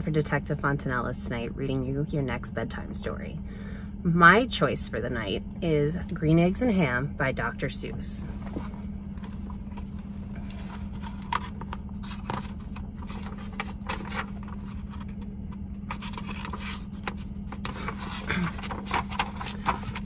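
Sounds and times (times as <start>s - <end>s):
steady low hum: 0.0s - 20.0s
book pages rustling: 8.4s - 20.0s.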